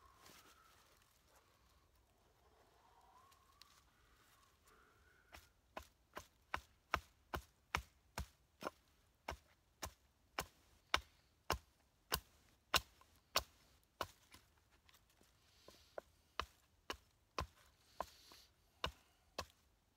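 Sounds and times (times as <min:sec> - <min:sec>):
hatchet chopping wood: 0:05.3 - 0:14.4, 0:18.8 - 0:19.6.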